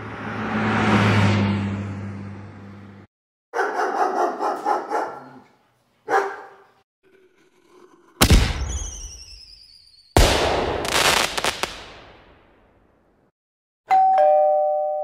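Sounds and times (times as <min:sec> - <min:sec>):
dog barking: 0:03.5 - 0:06.8
loud bangs: 0:08.2 - 0:09.4, 0:10.2 - 0:12.4
falling whistle: 0:08.6 - 0:10.2.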